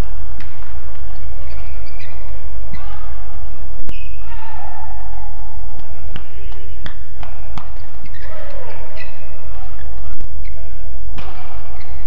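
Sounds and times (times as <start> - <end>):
rackets hitting shuttlecock: 5.7 - 12.0.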